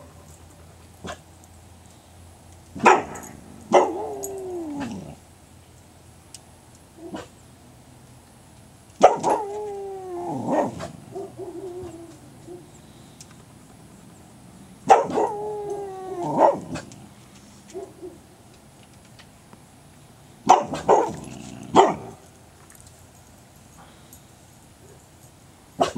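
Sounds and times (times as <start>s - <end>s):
dog howling: 3.7s - 5.2s, 9.0s - 12.7s, 14.9s - 16.9s.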